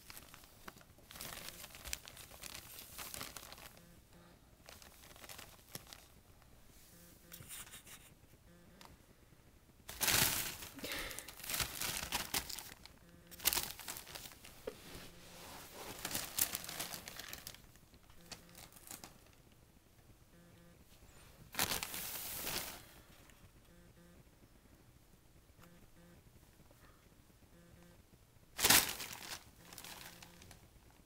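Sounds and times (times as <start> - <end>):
wrapping paper crinkling: 0.0 - 3.8, 4.6 - 6.1, 9.9 - 14.7, 15.4 - 19.4, 21.5 - 23.0, 28.6 - 30.6.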